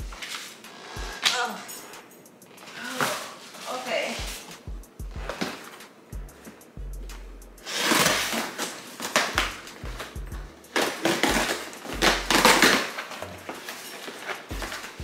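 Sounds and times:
background music with bass: 0:00.0 - 0:00.2, 0:00.9 - 0:01.2, 0:04.2 - 0:05.5, 0:06.1 - 0:07.7, 0:09.4 - 0:13.6, 0:14.5 - 0:15.0
packing tape ripping: 0:05.3 - 0:05.8, 0:07.6 - 0:09.8, 0:10.6 - 0:15.0
cardboard scraping and tearing: 0:07.6 - 0:09.4, 0:10.8 - 0:15.0.

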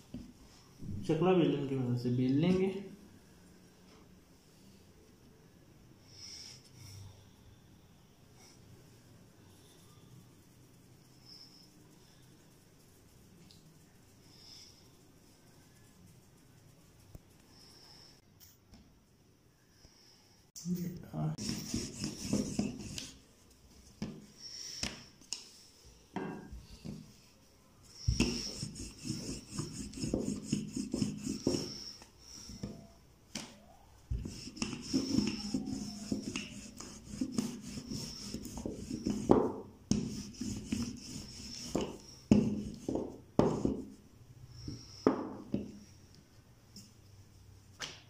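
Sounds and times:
rolling pin rolling dough: 0:21.4 - 0:25.0, 0:26.3 - 0:45.8.

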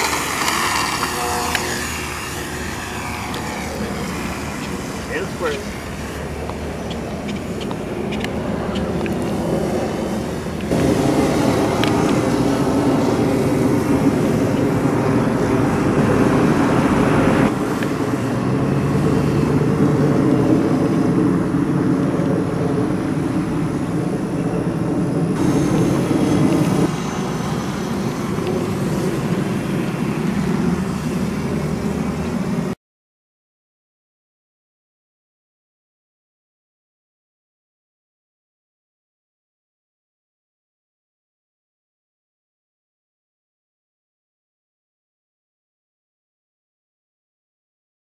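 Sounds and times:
model plane motor droning: 0:00.0 - 0:32.8.

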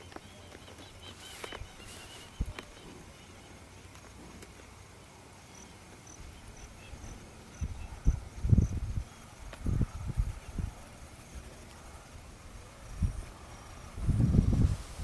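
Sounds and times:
insect chirping: 0:00.0 - 0:14.4
wind buffeting microphone: 0:06.3 - 0:11.1, 0:12.3 - 0:15.0.

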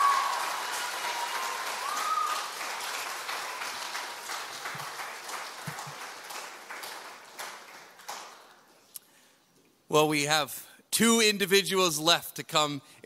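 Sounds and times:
congregation applauding: 0:00.0 - 0:08.7.

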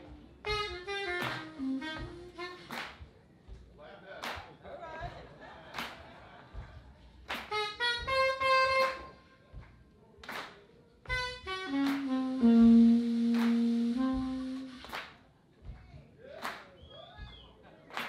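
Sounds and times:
soprano saxophone playing: 0:00.5 - 0:02.7, 0:07.5 - 0:09.1, 0:11.1 - 0:14.9.

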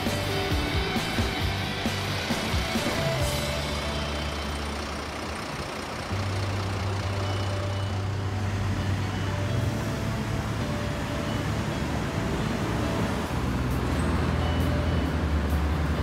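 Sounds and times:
heavy vehicle engine drone: 0:00.0 - 0:16.0
vehicles driving past: 0:00.0 - 0:16.0.

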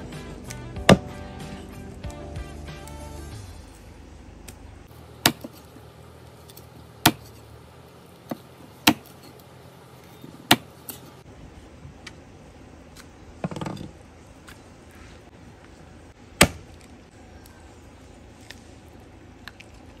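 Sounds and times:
cleaver chopping on wooden block: 0:05.2 - 0:05.7, 0:07.0 - 0:07.4, 0:08.3 - 0:09.2, 0:10.4 - 0:10.8, 0:16.4 - 0:16.7.

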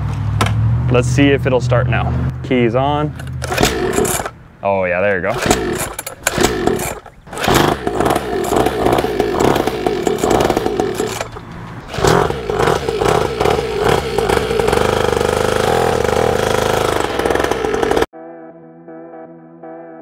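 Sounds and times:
two-stroke engine running unevenly: 0:03.4 - 0:04.3, 0:05.3 - 0:18.1.

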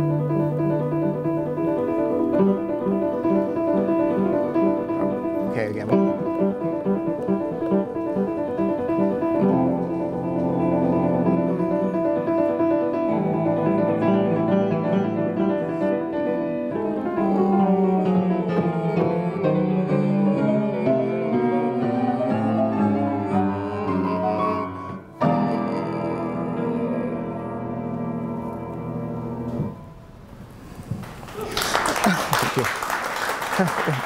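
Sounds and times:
toccata with repeated notes and chords: 0:00.0 - 0:19.7.

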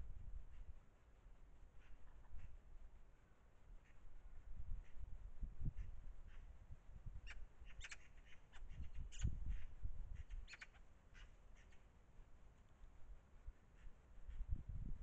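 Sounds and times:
magpie chacking calls: 0:07.2 - 0:11.9.

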